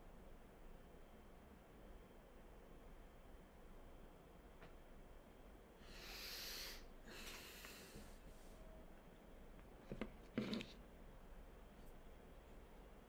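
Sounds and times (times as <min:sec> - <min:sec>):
person breathing: 0:05.8 - 0:08.3.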